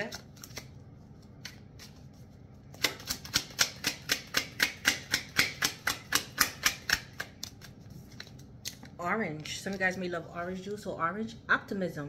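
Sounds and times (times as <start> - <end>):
cards being shuffled: 0.0 - 3.6, 6.8 - 9.9.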